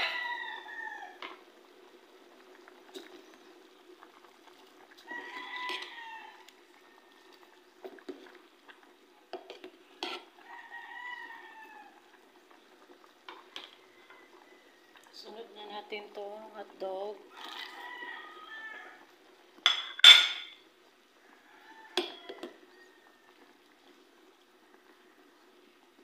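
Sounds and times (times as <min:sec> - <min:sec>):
rooster crowing: 0:00.0 - 0:01.2, 0:05.0 - 0:07.6, 0:10.4 - 0:12.0, 0:13.8 - 0:15.1, 0:17.3 - 0:19.1, 0:21.2 - 0:23.6
metal ladle clinking on pot: 0:19.7 - 0:20.6.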